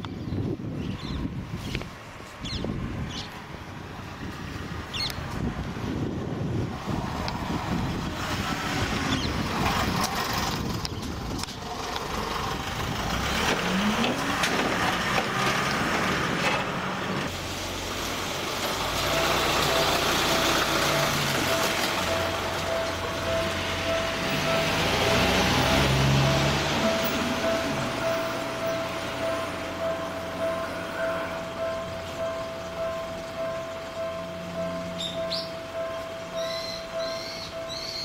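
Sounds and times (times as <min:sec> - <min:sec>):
road traffic rumble: 0:00.0 - 0:38.0
steady high tone: 0:19.1 - 0:38.0.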